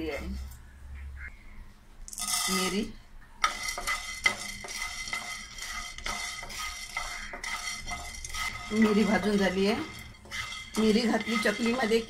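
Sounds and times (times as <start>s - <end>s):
peppercorns rattling in a pan: 2.1s - 2.8s, 3.4s - 12.0s
wooden spatula scraping a pan: 2.2s - 2.8s, 3.4s - 12.0s.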